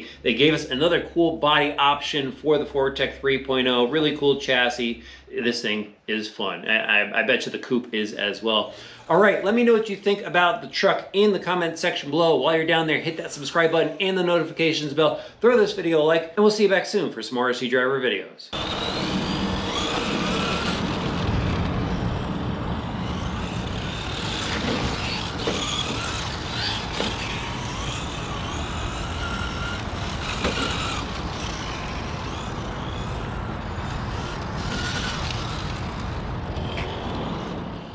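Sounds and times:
electric motor whining: 18.5s - 37.9s
tyre and drivetrain noise: 18.6s - 37.9s.

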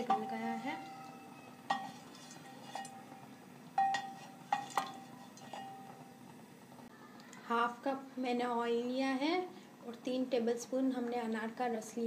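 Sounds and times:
wooden ladle knocking on metal pot: 0.0s - 1.1s, 1.7s - 3.0s, 3.8s - 6.0s.

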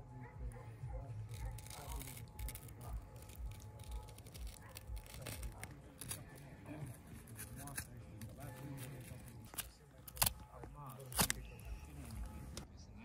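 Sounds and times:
knife slicing through skin: 1.3s - 11.4s.

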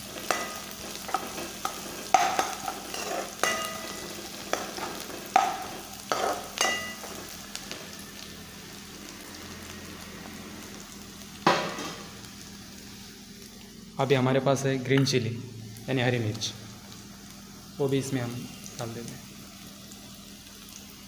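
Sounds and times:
food sizzling in oil: 0.0s - 21.0s
steel spoon scraping a pan: 0.2s - 7.1s.

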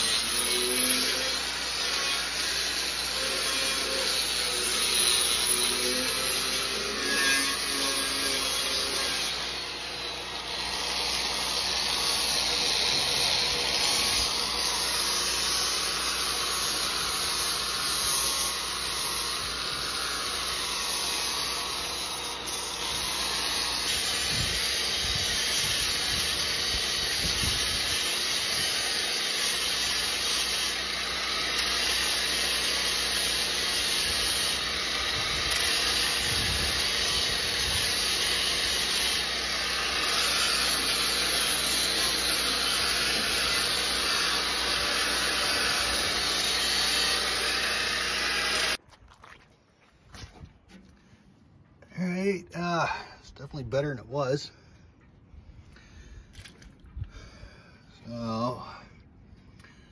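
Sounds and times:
angle grinder sanding steel: 0.0s - 48.8s.

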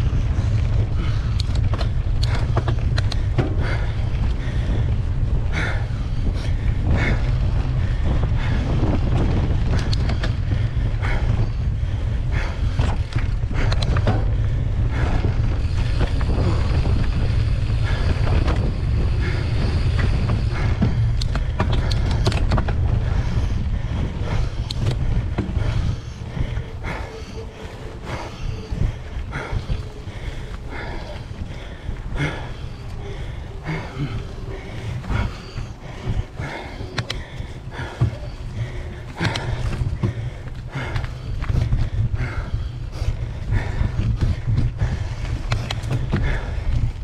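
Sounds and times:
bike clicks and rattles: 0.0s - 47.0s
wind and tyre rumble: 0.0s - 47.0s.

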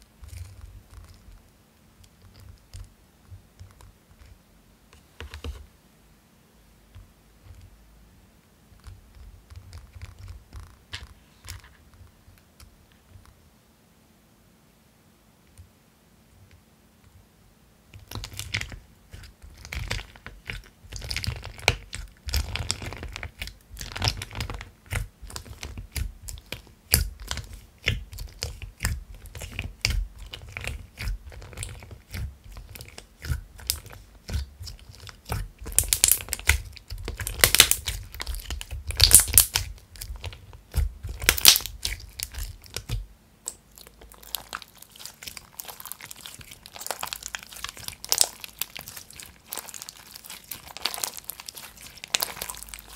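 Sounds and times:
crunchy slime crackling: 18.0s - 52.9s.

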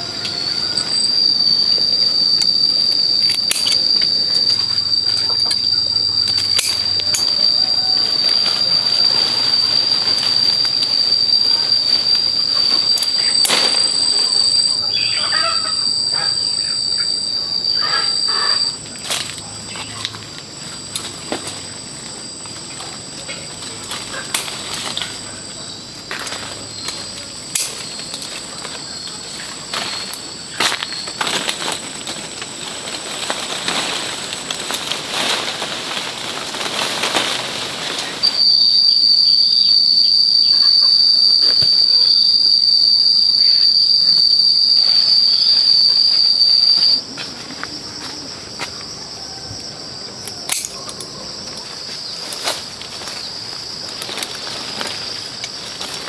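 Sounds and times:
clicks and leaf rustles: 0.0s - 49.4s, 50.1s - 56.0s
insects droning: 0.0s - 56.0s
loud high insect drone: 0.0s - 56.0s.

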